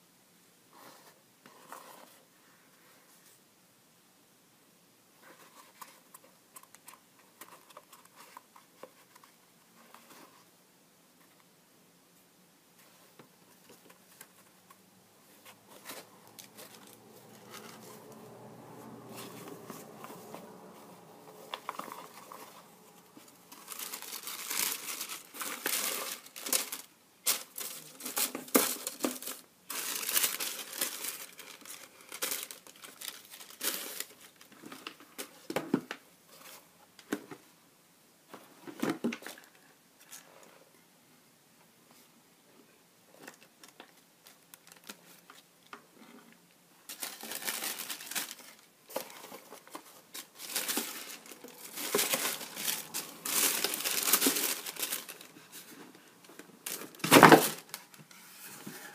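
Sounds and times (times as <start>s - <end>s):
tissue paper crinkling: 19.1s - 35.0s, 44.2s - 45.4s, 46.9s - 58.0s.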